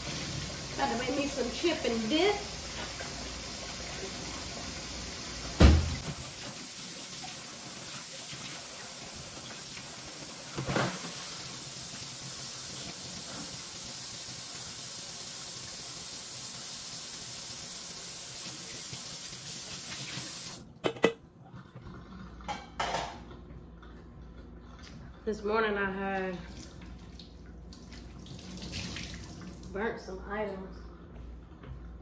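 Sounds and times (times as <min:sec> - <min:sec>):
dishes clanking: 0:20.8 - 0:21.2.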